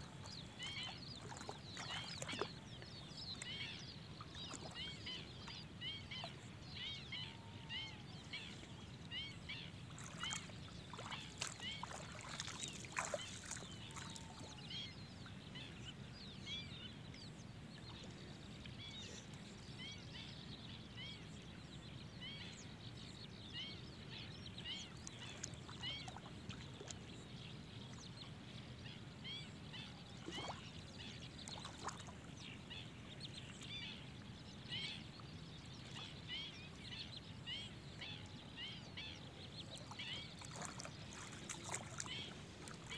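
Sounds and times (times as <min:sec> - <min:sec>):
soft water splashes: 0:00.0 - 0:15.4, 0:24.6 - 0:28.4, 0:29.2 - 0:34.9, 0:39.5 - 0:42.9
birds chirping: 0:00.0 - 0:20.1, 0:23.5 - 0:42.9.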